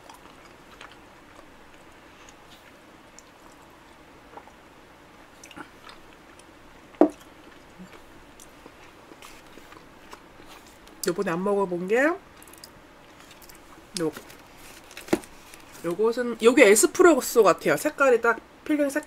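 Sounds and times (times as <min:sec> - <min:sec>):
soft chewing: 0:00.0 - 0:11.1, 0:12.3 - 0:15.9.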